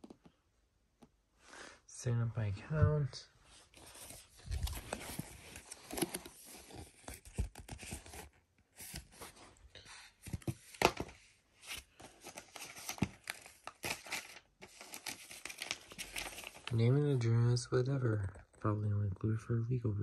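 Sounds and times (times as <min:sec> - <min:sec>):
paper packaging rustling: 0:03.7 - 0:17.0.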